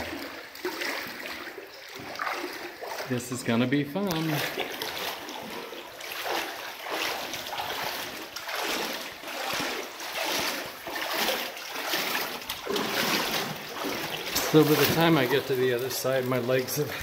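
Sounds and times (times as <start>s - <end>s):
legs wading through water: 0.0s - 17.0s.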